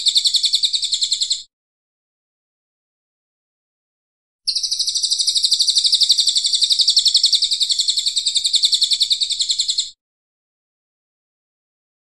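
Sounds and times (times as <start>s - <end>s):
songbird trilling: 4.5s - 10.0s.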